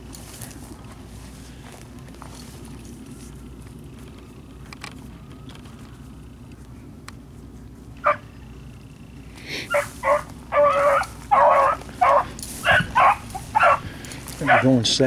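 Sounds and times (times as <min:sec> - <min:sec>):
dogs barking: 0:08.0 - 0:08.3, 0:09.6 - 0:14.9
dogs baying: 0:08.0 - 0:08.4, 0:09.5 - 0:14.9.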